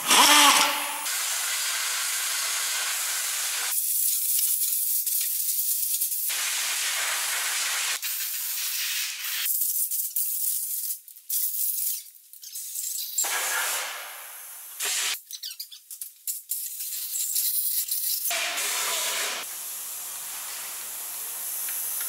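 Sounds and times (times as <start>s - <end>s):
compressed air hissing: 0.0s - 3.8s, 18.3s - 22.0s.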